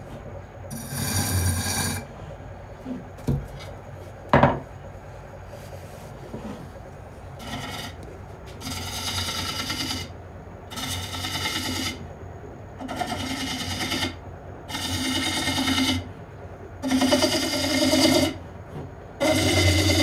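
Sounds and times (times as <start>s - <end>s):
lathe tool cutting wood: 19.2s - 20.0s.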